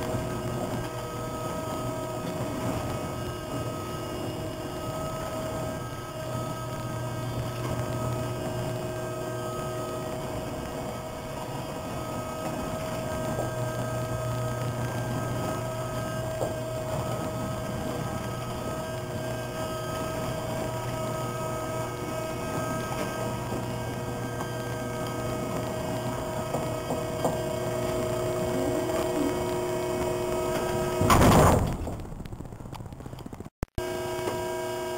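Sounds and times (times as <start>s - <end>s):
gate mechanical hum: 0.0s - 34.9s
thin even whine: 0.0s - 34.9s.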